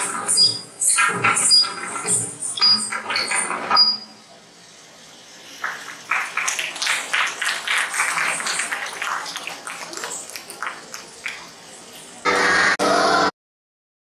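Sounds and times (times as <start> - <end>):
audience applauding: 5.6 - 11.7.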